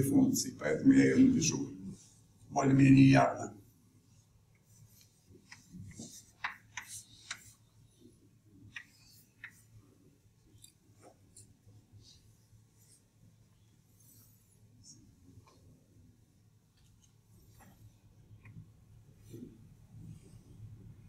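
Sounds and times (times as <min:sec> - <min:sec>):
chalk tapping on chalkboard: 0:05.0 - 0:07.6.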